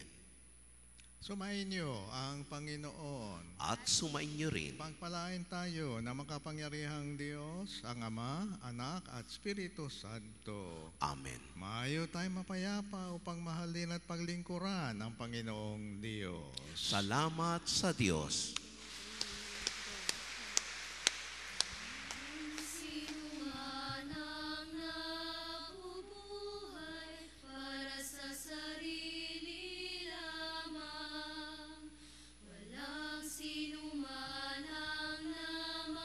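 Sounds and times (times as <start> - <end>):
voices singing a hymn: 16.6 - 36.0
hiss: 18.6 - 23.9.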